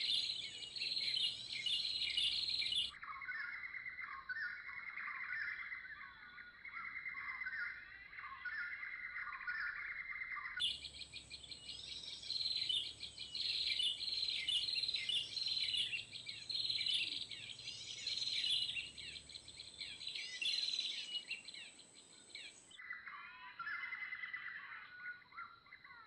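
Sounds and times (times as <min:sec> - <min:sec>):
songbirds chirping and trilling: 0:00.0 - 0:26.0.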